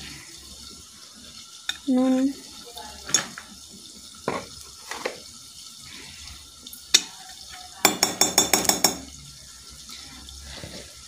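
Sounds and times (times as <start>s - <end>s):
metal spoon clinking in steel bowl: 7.8s - 9.1s.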